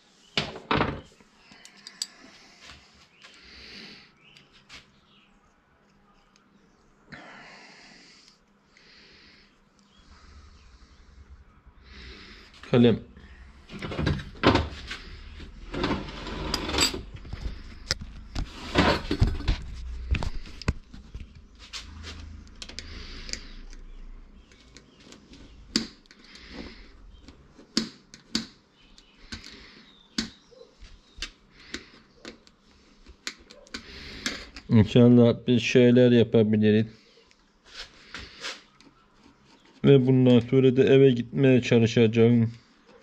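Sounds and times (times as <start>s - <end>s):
tools and metal parts clicking: 1.5s - 2.2s.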